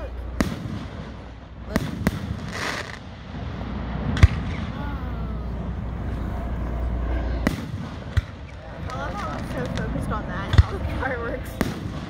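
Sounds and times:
low steady rumble: 0.0 - 12.0
firework shells booming: 0.3 - 4.8, 7.4 - 12.0.

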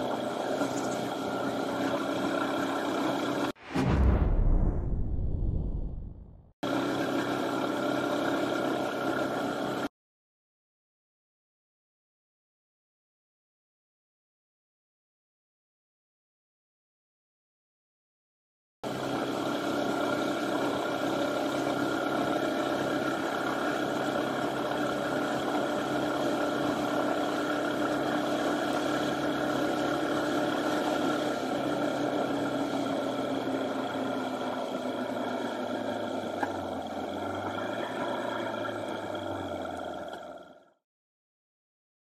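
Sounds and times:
motorcycle engine running: 0.0 - 3.6, 6.7 - 9.9, 18.9 - 40.7
wind and road rush: 1.3 - 6.9.

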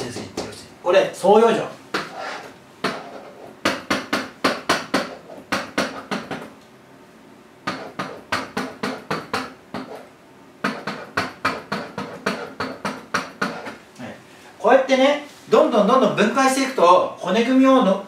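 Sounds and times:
pen tapping on whiteboard: 0.0 - 0.6, 2.8 - 6.5, 7.6 - 13.8.

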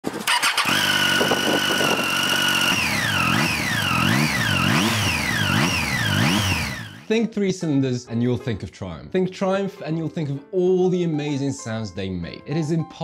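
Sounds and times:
engine revving: 0.2 - 7.1
motorcycle engine idling: 0.3 - 7.1.

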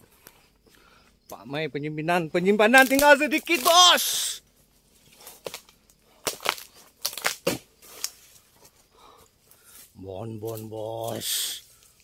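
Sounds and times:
blade chopping palm fronds: 2.6 - 4.2, 5.0 - 8.3.

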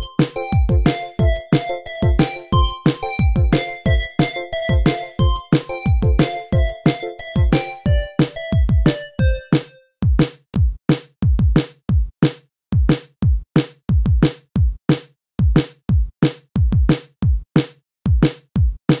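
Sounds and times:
electronic drum-machine beat: 0.0 - 10.8.

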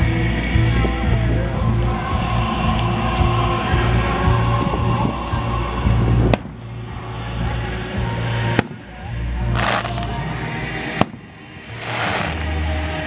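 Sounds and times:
background music: 0.0 - 13.0
firework shells bursting: 9.6 - 10.1, 11.0 - 12.5
firework hissing: 9.6 - 10.2, 11.0 - 12.6.

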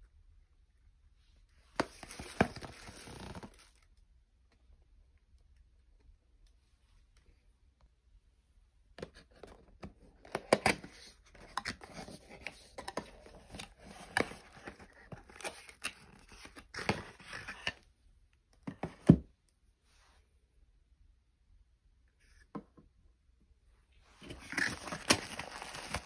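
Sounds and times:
cardboard box being opened: 24.2 - 26.0.

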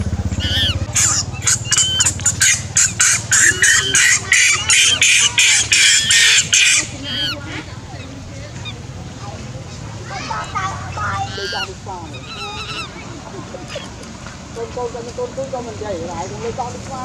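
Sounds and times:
animal giving harsh calls: 0.0 - 14.1
high animal chirps: 0.3 - 8.9, 9.6 - 14.0.

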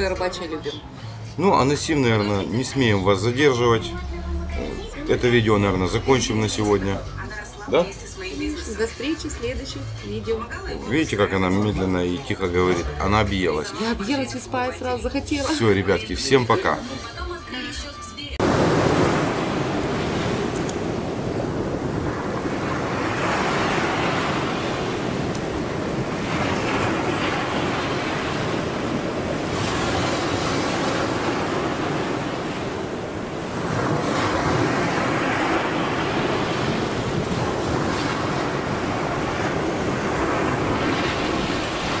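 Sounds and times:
waves washing on shore: 18.4 - 42.0
wind rumble on microphone: 18.4 - 42.0.

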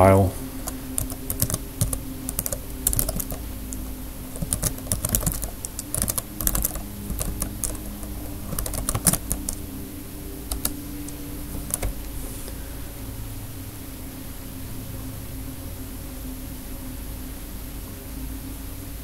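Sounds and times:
low steady hum: 0.0 - 19.0
typing on computer keyboard: 0.6 - 9.6, 10.4 - 12.0.

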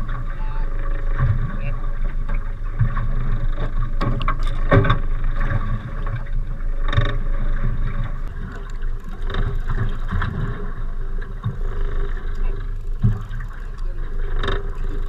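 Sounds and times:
boat engine hum: 0.0 - 15.0
fishing gear knocking: 8.2 - 15.0.

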